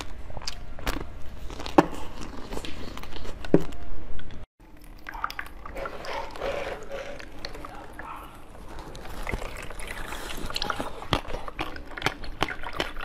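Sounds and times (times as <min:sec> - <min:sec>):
ice cream shell crunching: 0:00.0 - 0:03.6, 0:07.0 - 0:13.0
soft chewing clicks: 0:07.2 - 0:13.0.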